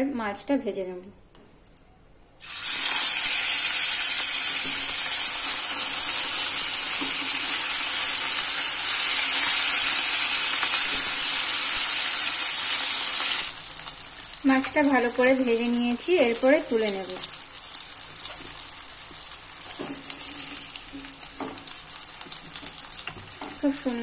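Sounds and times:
fish sizzling in hot oil: 0:02.4 - 0:24.0.

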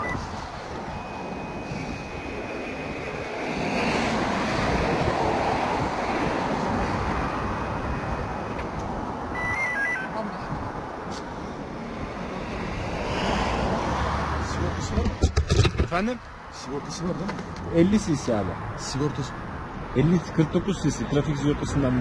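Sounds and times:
highway traffic passing: 0:00.0 - 0:22.0
descending electronic beeps: 0:09.3 - 0:10.2.

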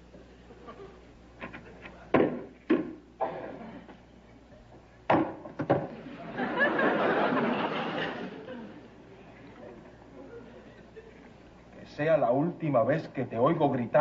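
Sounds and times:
crowd murmur: 0:06.0 - 0:11.8.

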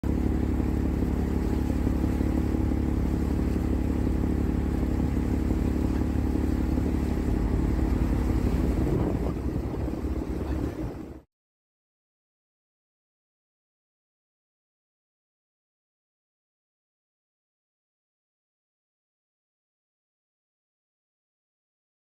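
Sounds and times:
boat engine humming: 0:00.0 - 0:11.2.

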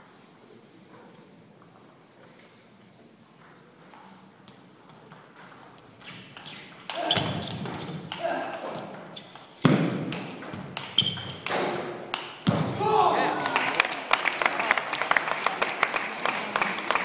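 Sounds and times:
people shouting and cheering: 0:12.6 - 0:17.0.

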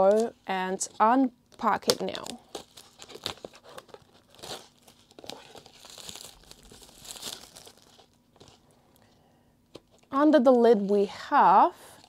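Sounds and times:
plastic wrap crinkling: 0:00.0 - 0:09.1.

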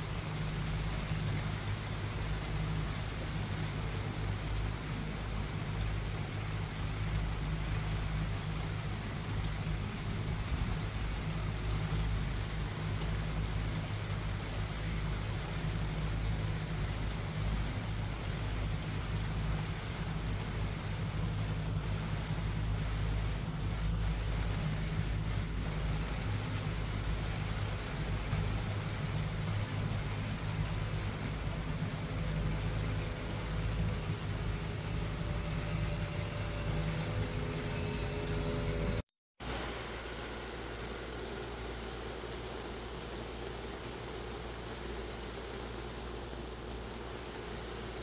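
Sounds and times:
steady rain: 0:00.0 - 0:48.0
low rumble: 0:16.6 - 0:39.0.

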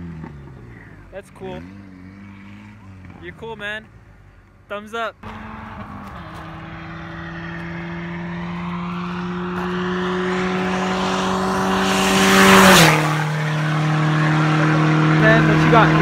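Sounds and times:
car passing at speed: 0:05.2 - 0:16.0.

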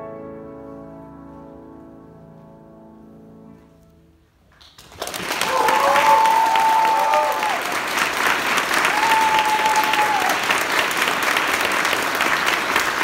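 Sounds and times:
audience clapping: 0:04.6 - 0:13.0.

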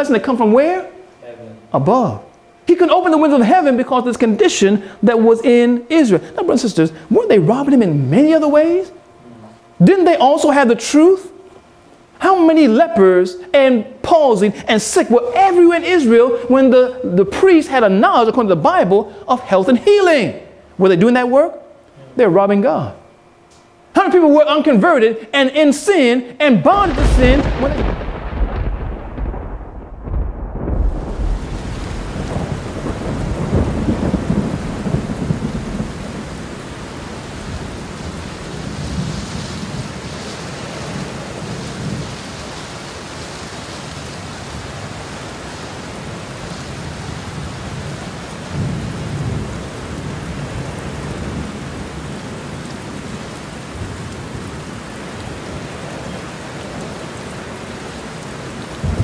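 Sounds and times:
steady rain: 0:02.6 - 0:09.0, 0:26.0 - 0:59.0
thunder rumbling: 0:26.8 - 0:42.2, 0:58.8 - 0:59.0.

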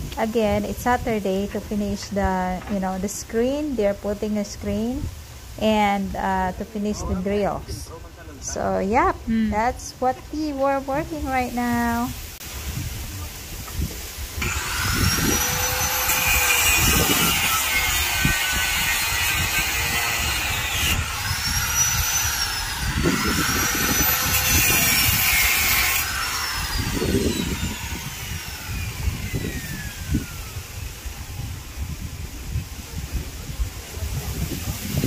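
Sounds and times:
electric power tool motor whining: 0:14.4 - 0:31.8.

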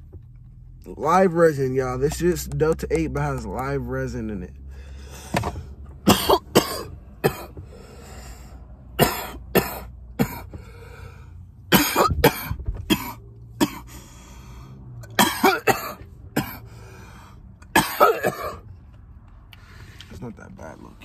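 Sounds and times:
man coughing harshly: 0:06.0 - 0:07.6, 0:09.0 - 0:10.6, 0:11.7 - 0:13.9, 0:15.2 - 0:16.7, 0:17.7 - 0:18.7.

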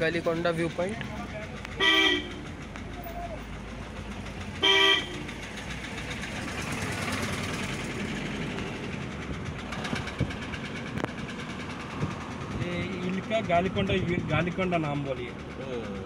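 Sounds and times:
car horn toot: 0:01.8 - 0:02.4, 0:04.6 - 0:05.3.

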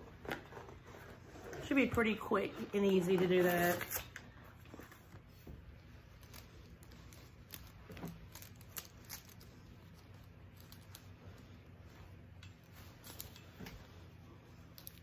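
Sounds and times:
curtain fabric rustling: 0:05.0 - 0:15.0.

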